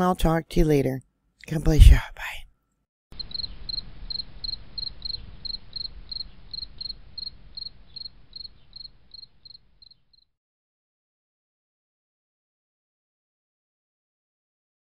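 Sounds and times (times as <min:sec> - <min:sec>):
high-pitched chirps: 0:03.2 - 0:10.0.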